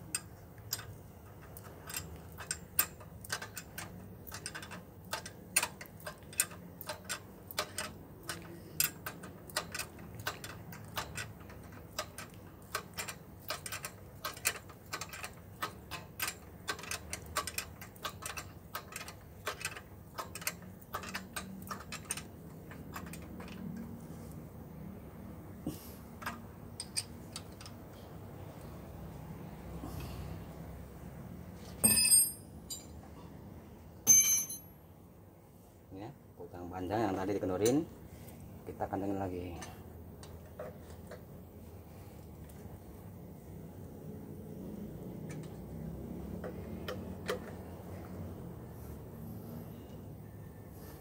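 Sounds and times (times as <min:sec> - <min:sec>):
ratchet wrench clicking: 0:00.0 - 0:23.8.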